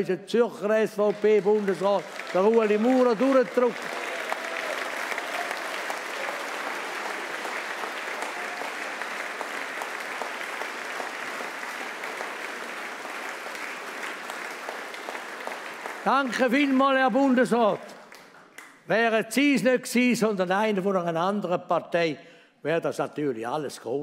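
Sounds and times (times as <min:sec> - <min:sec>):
audience applauding: 0:00.6 - 0:18.8.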